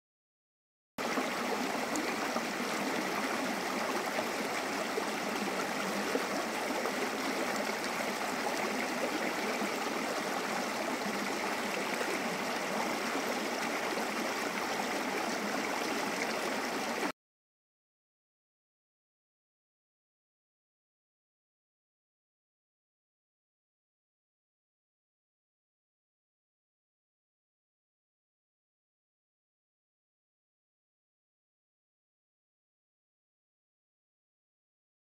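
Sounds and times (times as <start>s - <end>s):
creek water flowing: 1.0s - 17.1s.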